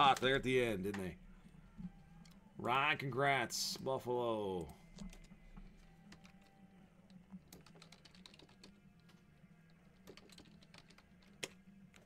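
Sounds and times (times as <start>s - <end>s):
faint keyboard typing: 4.6s - 12.0s.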